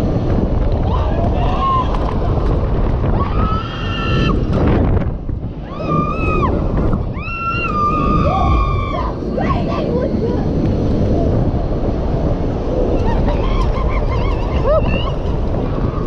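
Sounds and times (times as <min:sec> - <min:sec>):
wind buffeting microphone: 0:00.0 - 0:16.0
riders screaming: 0:00.8 - 0:02.3, 0:03.1 - 0:04.5, 0:05.6 - 0:10.2.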